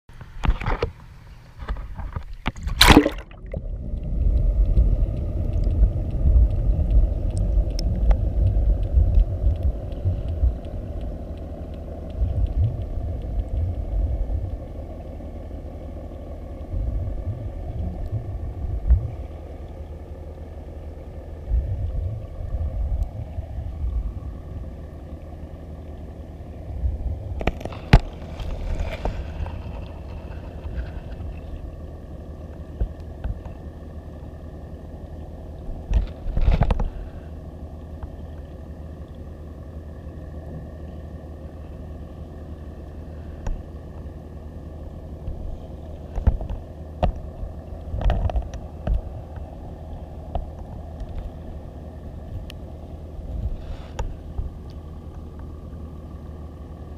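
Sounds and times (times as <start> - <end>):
faint steady hum: 0.1 - 56.9
muffled underwater rumble: 0.1 - 56.9
water splash: 2.5 - 3.8.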